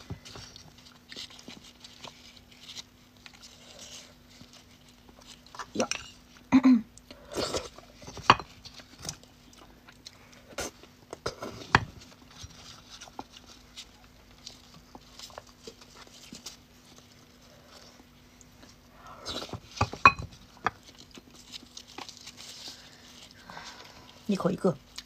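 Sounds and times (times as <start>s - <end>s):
faint steady hum: 0.0s - 25.0s.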